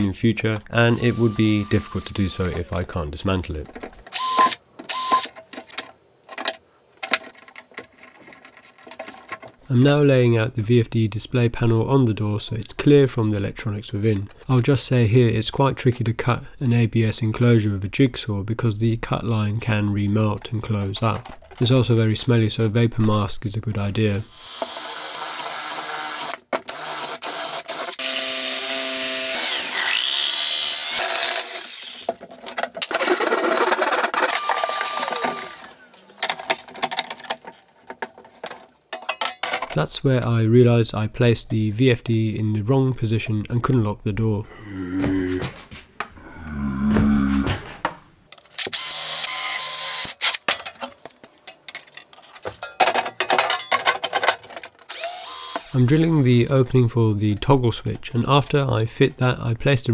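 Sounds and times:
metal parts clicking and knocking: 3.6 - 9.6, 31.0 - 39.8, 50.2 - 55.7
cordless drill boring plastic: 4.1 - 5.3, 24.3 - 32.1, 32.9 - 36.6, 48.6 - 50.4, 54.9 - 56.4
jigsaw cutting plastic: 24.5 - 32.2, 32.8 - 37.4, 54.9 - 56.2.

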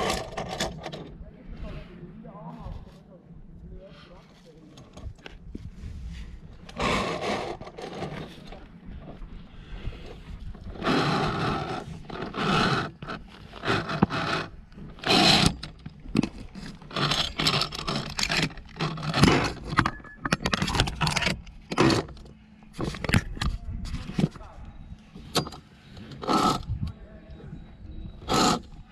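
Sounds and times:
climbing gear scraping on rock: 4.8 - 27.0, 28.1 - 28.9.

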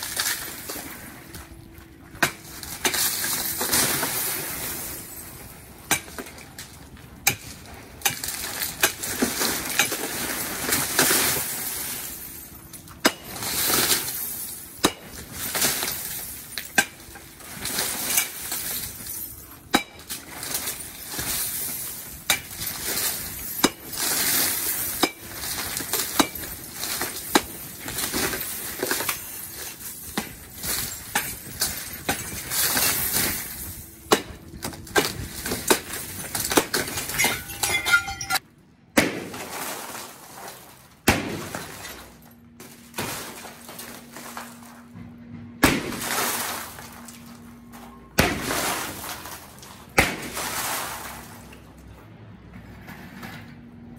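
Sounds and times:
glass shards clinking and falling: 2.5 - 6.7, 8.0 - 38.4, 41.4 - 44.7
bat smashing glass windows: 45.6 - 47.1, 48.2 - 51.5.

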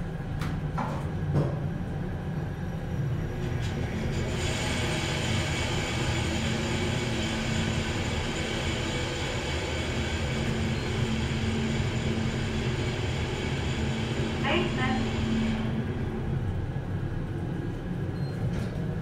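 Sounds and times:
elevator running rumble and hiss: 0.0 - 19.0.

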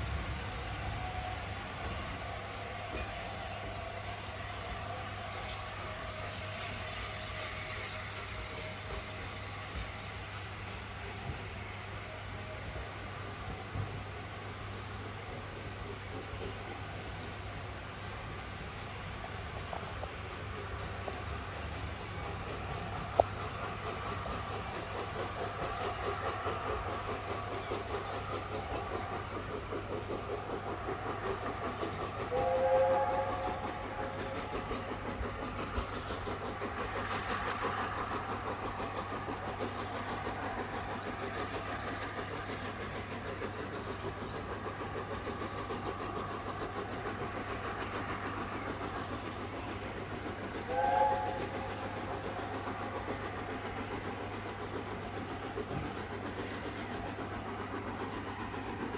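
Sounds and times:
train running on rails: 0.0 - 58.9
locomotive whistle blasts: 32.3 - 33.6, 50.7 - 51.4.

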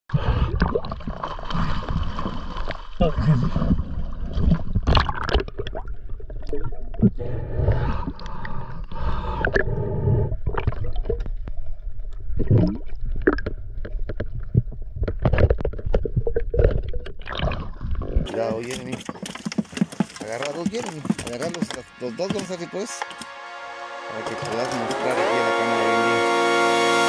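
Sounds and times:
water gurgling and sloshing: 0.1 - 23.2
short knocks and scrapes: 18.3 - 23.3.

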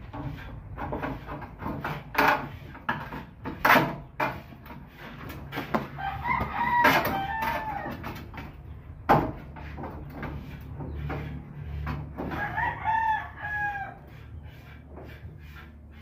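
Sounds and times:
knocks and scrapes on enclosure: 0.0 - 16.0
rooster crowing: 5.9 - 8.1, 12.2 - 14.2.

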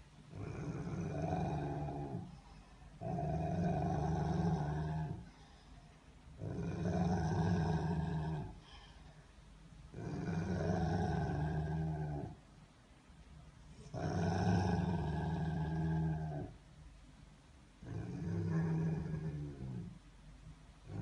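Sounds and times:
dog grumbling: 0.3 - 2.4, 3.0 - 5.3, 6.4 - 8.6, 9.9 - 12.4, 13.8 - 16.6, 17.8 - 20.0.

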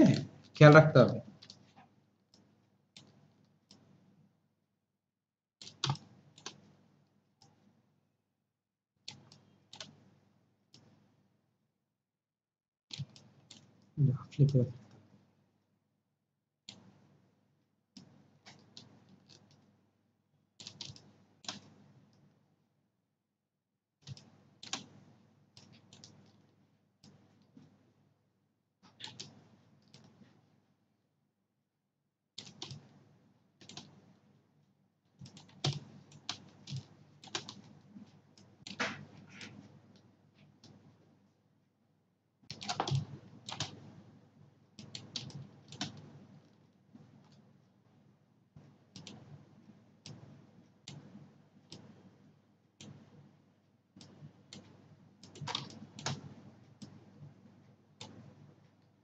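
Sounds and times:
keyboard and mouse clicks: 1.4 - 1.7, 2.3 - 3.9, 5.6 - 6.7, 9.1 - 10.0, 12.9 - 15.1, 16.7 - 17.0, 18.0 - 19.7, 20.6 - 22.3, 24.0 - 27.8, 28.8 - 30.3, 32.4 - 33.0, 33.6 - 34.1, 35.2 - 40.8, 42.4 - 43.9, 44.8 - 47.5, 48.6 - 49.4, 50.0 - 50.3, 50.9 - 52.1, 52.8 - 53.2, 54.0 - 57.4, 58.0 - 58.8.

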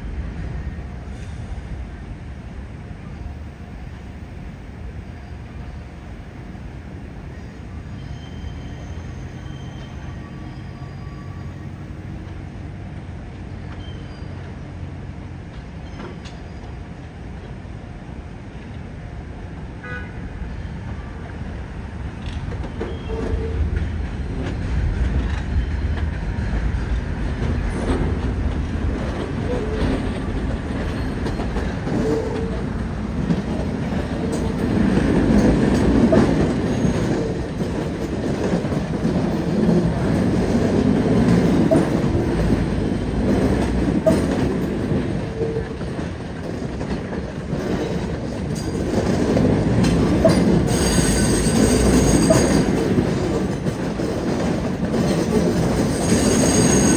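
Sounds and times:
train wheels rumbling on rails: 0.0 - 56.9
wheel squeals: 7.9 - 11.9, 13.6 - 14.5, 22.6 - 23.8, 29.4 - 32.7, 35.3 - 38.7, 47.6 - 54.2, 54.9 - 56.9
wheels clacking over rail joints: 22.1 - 56.9.

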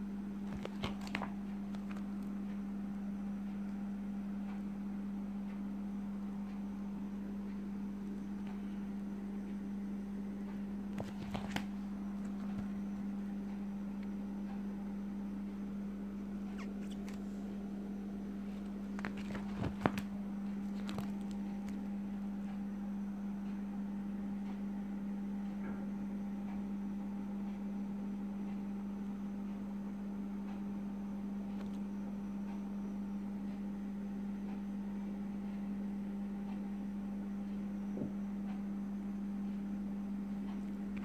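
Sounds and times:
steady low hum: 0.0 - 41.0
plastic pages clicking: 0.5 - 2.3, 11.0 - 12.7, 18.5 - 21.9.

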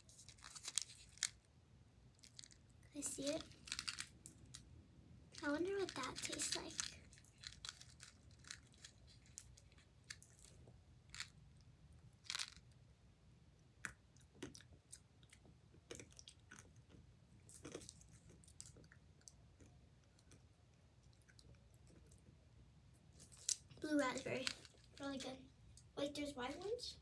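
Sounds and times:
hard candy crunching: 0.0 - 1.4, 2.1 - 4.7, 5.3 - 11.4, 12.2 - 12.8, 13.8 - 20.5, 23.2 - 25.2.

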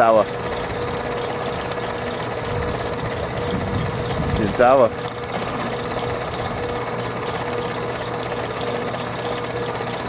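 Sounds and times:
motor whirring with fine rattle: 0.0 - 10.0.

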